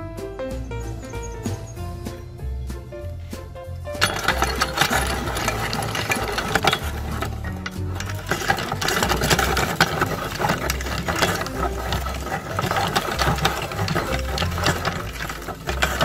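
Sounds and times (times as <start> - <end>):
clatter of clicks: 4.0 - 16.0
meat grinder motor hum: 4.0 - 16.0.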